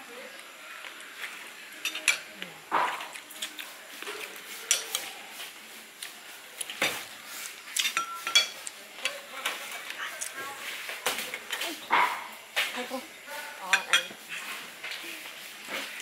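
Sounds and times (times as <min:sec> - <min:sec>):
cutlery clinking on plates: 0:01.8 - 0:03.5, 0:04.2 - 0:05.1, 0:07.8 - 0:09.9, 0:13.7 - 0:14.3.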